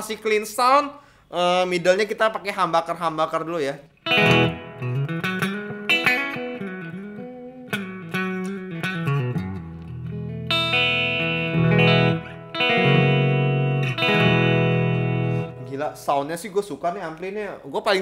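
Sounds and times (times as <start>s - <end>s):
clean electric guitar: 4.0s - 16.1s.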